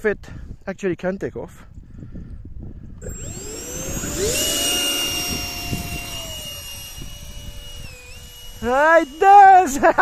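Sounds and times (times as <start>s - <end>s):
electric fans high whine: 3.0s - 10.0s.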